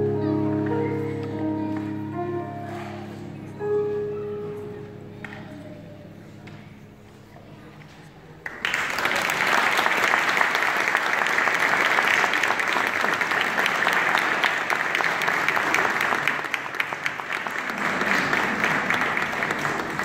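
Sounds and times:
audience applauding: 0:08.4 - 0:20.0.

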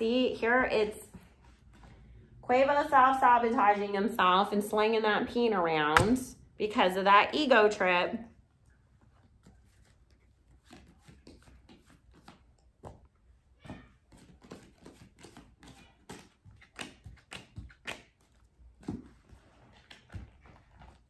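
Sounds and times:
cards being shuffled: 0:09.1 - 0:13.0, 0:14.1 - 0:21.0.

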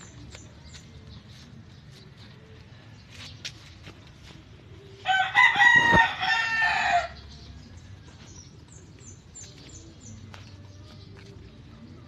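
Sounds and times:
small birds chirping: 0:00.0 - 0:05.0, 0:05.8 - 0:12.0
rooster crowing: 0:05.0 - 0:07.2.

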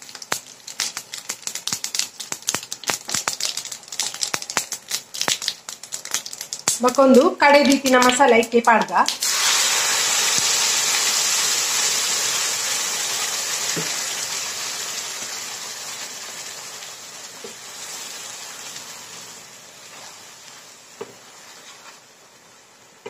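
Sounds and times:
paste sizzling in hot oil: 0:00.0 - 0:23.0.

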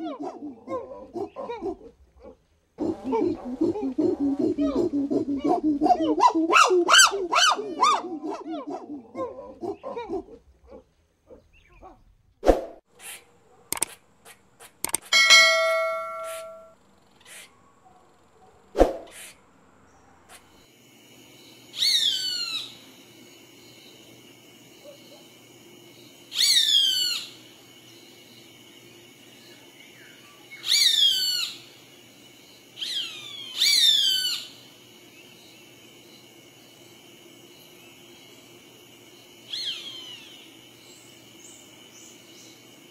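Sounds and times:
monkey calling: 0:00.0 - 0:12.0.

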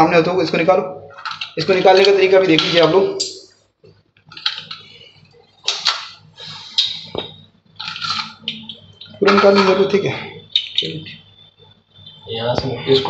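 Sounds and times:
plastic parts scraping and rustling: 0:07.8 - 0:10.0.

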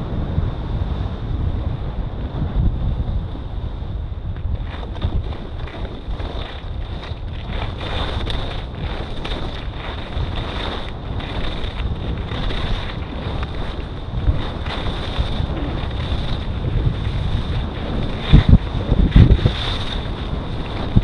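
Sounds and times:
wind buffeting microphone: 0:00.0 - 0:21.0
skis scraping on snow: 0:04.5 - 0:21.0.

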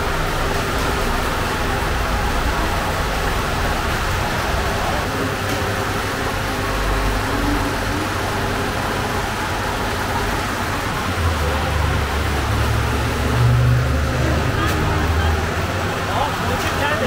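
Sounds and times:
low engine rumble: 0:00.0 - 0:17.0
steady mechanical roar: 0:00.0 - 0:17.0.

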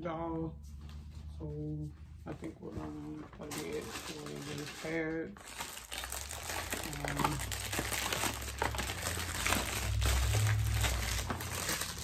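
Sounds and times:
plastic packaging crinkling: 0:02.7 - 0:12.0.

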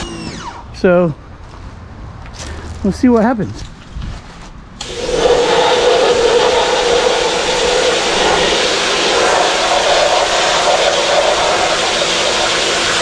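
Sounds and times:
pressure washer running: 0:04.8 - 0:13.0
water spray hiss: 0:04.8 - 0:13.0.

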